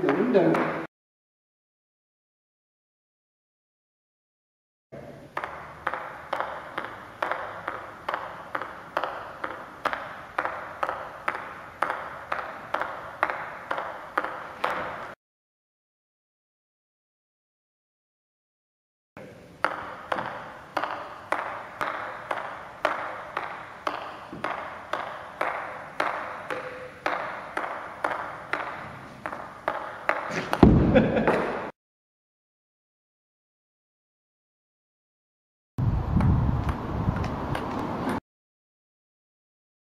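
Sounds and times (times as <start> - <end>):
ping pong ball bouncing on paddle: 0.0 - 0.9, 5.4 - 15.2, 19.6 - 31.5
heavy thud: 30.6 - 31.6.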